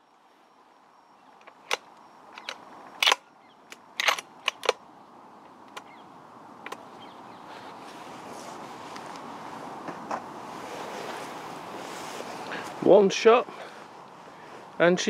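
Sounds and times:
sharp clicks and cracks: 1.4s - 4.8s, 6.6s - 6.8s.

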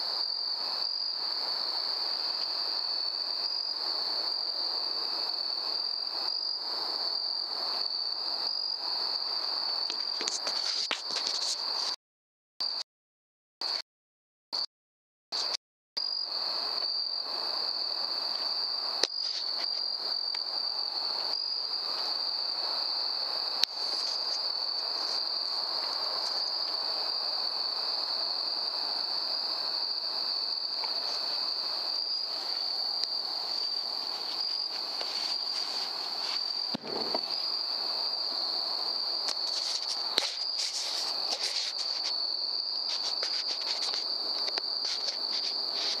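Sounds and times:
crickets trilling: 0.0s - 12.0s, 15.4s - 46.0s
rustling: 33.4s - 37.4s.

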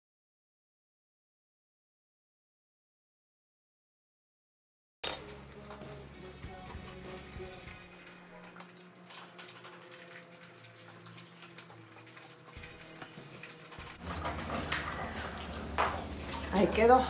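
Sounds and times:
faint background music: 5.1s - 17.0s.

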